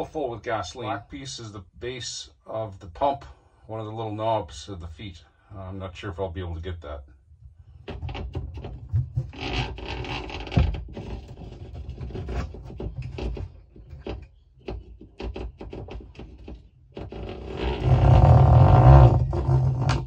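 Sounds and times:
wire pick scraping inside tank: 7.7 - 20.0
low rumbling handling noise: 17.4 - 20.0.

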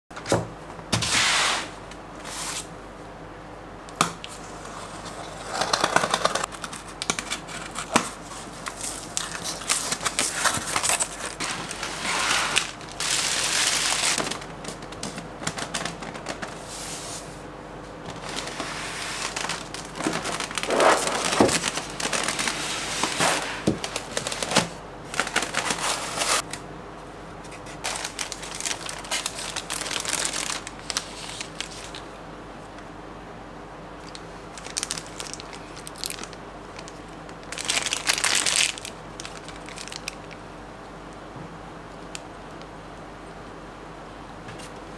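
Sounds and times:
plastic wrap crinkling: 5.5 - 16.5, 18.1 - 26.6, 27.5 - 32.1, 34.0 - 40.4.

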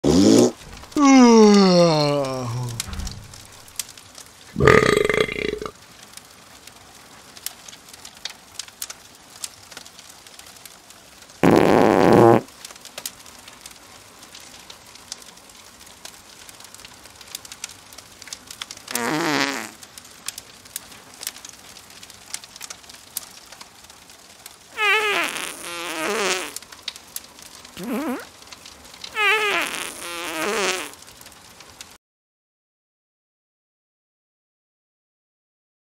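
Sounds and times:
comic fart sound effects: 0.0 - 1.1, 2.2 - 3.7, 4.6 - 5.7, 11.4 - 12.5, 18.9 - 19.8, 24.8 - 26.6, 27.8 - 28.3, 29.1 - 31.0
campfire crackling: 0.2 - 32.0.

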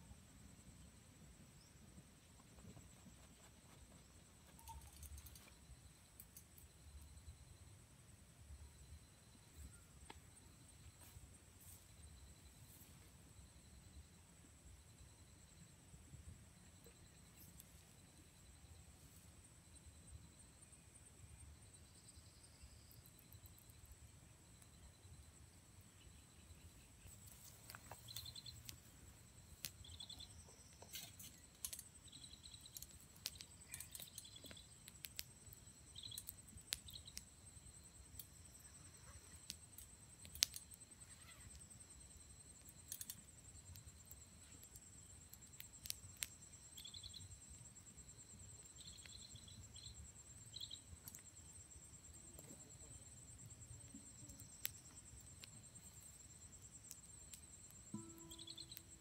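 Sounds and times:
high-pitched insect trill: 1.5 - 7.8, 16.5 - 59.0
short chirping calls: 26.0 - 28.8, 29.5 - 35.0, 48.6 - 51.2, 58.0 - 59.0
campfire crackling and popping: 31.4 - 37.3, 39.4 - 40.9.

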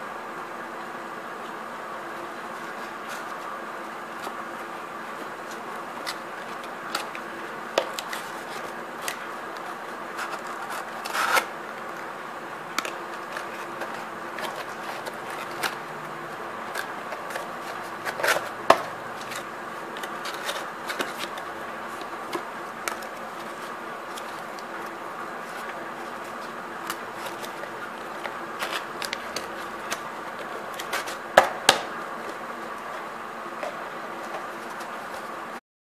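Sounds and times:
steady background hum: 0.0 - 35.6
cardboard and paper handling: 2.4 - 35.6
paper rustles: 5.1 - 11.5, 12.8 - 31.3.

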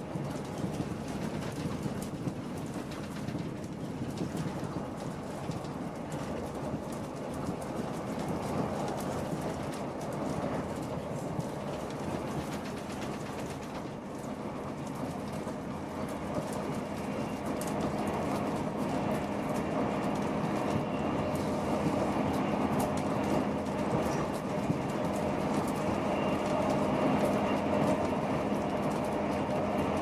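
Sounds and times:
train cabin low drone: 0.0 - 30.0
wheel and rail noise: 0.0 - 30.0.

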